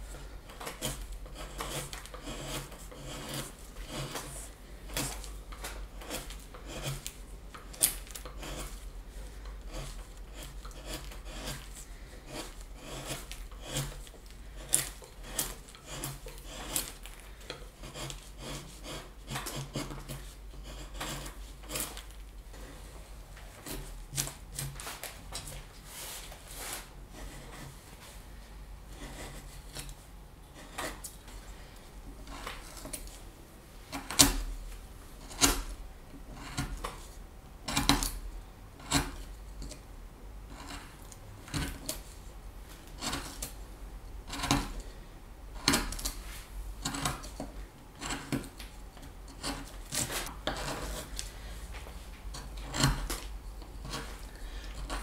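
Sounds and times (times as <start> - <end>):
carving tool shaving wood: 0.2 - 22.2, 27.1 - 27.8, 28.9 - 29.9, 30.5 - 31.2, 32.2 - 33.2, 35.2 - 38.2, 38.8 - 39.8, 40.5 - 42.2, 42.8 - 43.6, 44.2 - 45.0, 45.6 - 51.5, 52.3 - 55.0.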